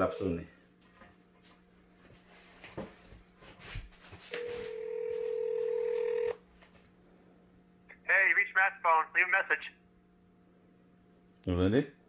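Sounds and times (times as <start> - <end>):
phone ringback tone: 4.3 - 6.4.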